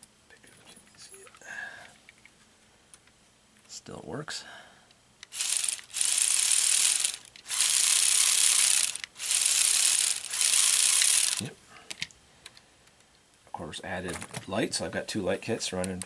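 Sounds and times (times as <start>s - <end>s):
plastic gears clattering: 5.3s - 12.1s.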